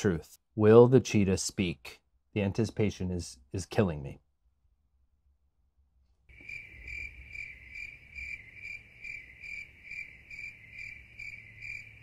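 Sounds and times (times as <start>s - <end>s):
cricket chirping: 6.3s - 12.0s.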